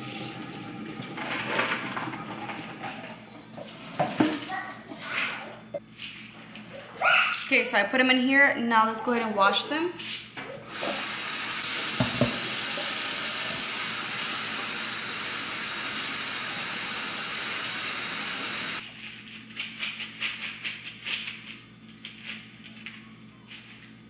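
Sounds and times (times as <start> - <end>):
tap water hissing: 0.0 - 4.1, 10.6 - 18.8.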